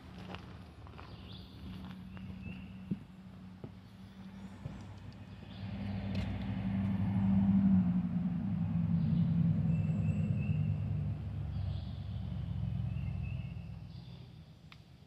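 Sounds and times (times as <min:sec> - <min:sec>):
footsteps on wooden footbridge: 0:00.1 - 0:03.8, 0:04.5 - 0:05.0
passing motor vehicle engine drone: 0:01.6 - 0:14.7.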